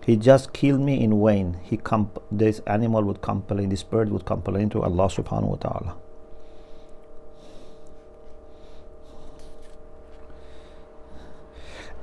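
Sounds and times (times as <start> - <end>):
faint steady hum: 0.0 - 12.0
soft breaths: 6.3 - 12.0.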